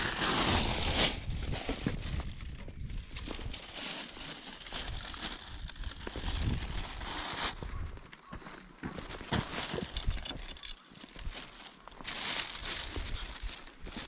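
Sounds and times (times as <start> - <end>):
wind on microphone: 0.0 - 3.7, 4.7 - 8.0
plastic bag rustling: 0.0 - 7.9, 9.1 - 14.0.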